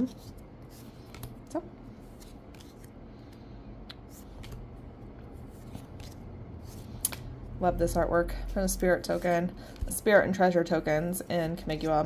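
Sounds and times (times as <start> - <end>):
cards clicking and sliding: 0.1 - 1.4, 2.0 - 4.7, 5.5 - 7.3.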